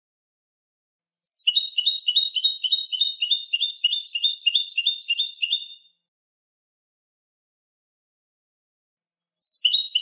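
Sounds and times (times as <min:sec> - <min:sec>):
goldfinch singing: 0:01.3 - 0:05.8, 0:09.4 - 0:10.0.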